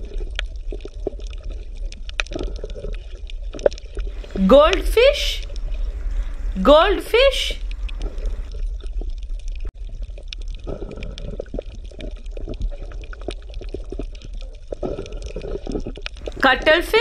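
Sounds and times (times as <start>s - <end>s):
small crackling pops: 0.0s - 4.8s, 7.6s - 17.0s
water bubbling and gurgling: 0.0s - 17.0s
low rumble: 4.1s - 9.7s, 16.2s - 16.8s.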